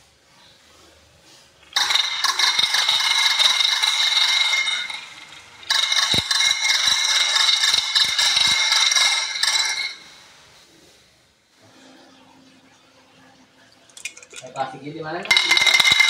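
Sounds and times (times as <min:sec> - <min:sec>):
marbles rattling down wooden track: 0:01.6 - 0:10.0, 0:15.2 - 0:16.0.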